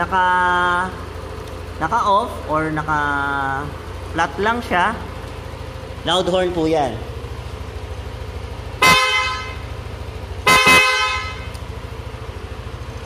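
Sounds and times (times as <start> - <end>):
scooter horn blasts: 8.7 - 11.8.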